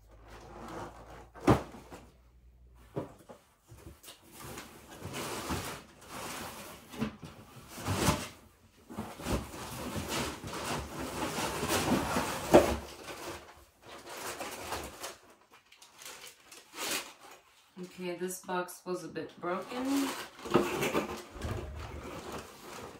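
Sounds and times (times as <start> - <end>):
cardboard boxes scraping and rustling: 2.9 - 15.2, 19.6 - 22.9.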